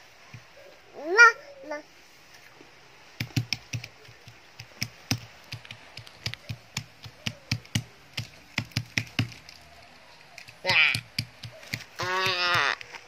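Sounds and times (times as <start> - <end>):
sharp taps and knocks: 3.2 - 9.6, 10.4 - 13.0.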